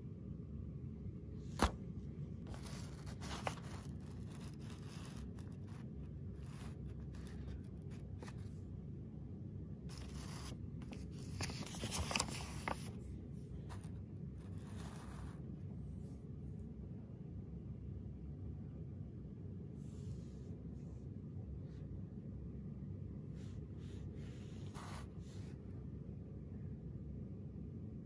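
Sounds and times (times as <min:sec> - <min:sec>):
low background rumble: 0:00.0 - 0:28.0
paper mailer rustling and crinkling: 0:01.6 - 0:01.8, 0:02.4 - 0:08.5, 0:09.9 - 0:13.9.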